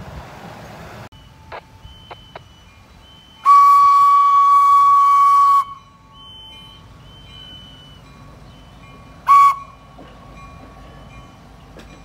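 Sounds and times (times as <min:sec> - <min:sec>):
steam locomotive whistle: 0:03.3 - 0:08.1, 0:09.2 - 0:09.8.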